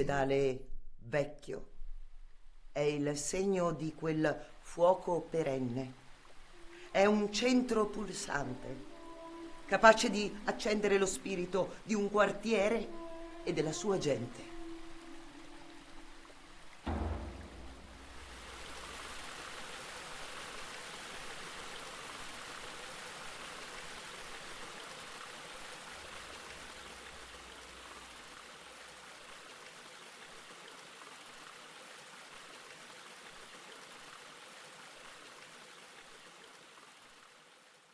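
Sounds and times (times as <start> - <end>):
steady rushing hiss: 6.0 - 28.4
low rumble: 14.4 - 19.1.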